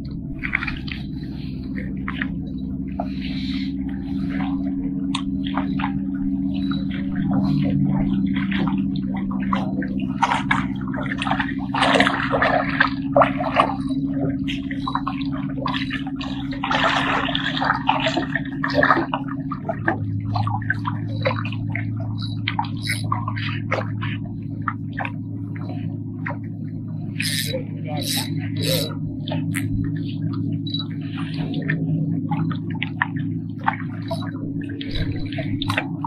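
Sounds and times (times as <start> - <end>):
waves lapping among rocks: 0.0 - 26.5
low hum: 0.0 - 36.0.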